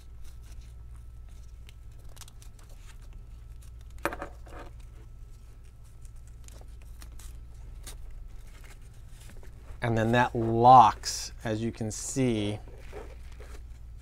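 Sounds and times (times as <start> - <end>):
webbing rustling and scraping: 4.7 - 14.0.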